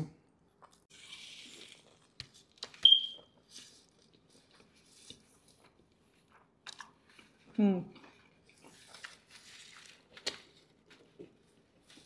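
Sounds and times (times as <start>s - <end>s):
soft chewing: 0.3s - 12.0s.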